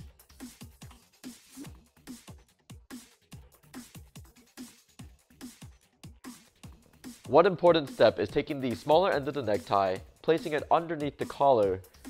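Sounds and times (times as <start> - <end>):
electronic music with kick drum: 0.0 - 12.0.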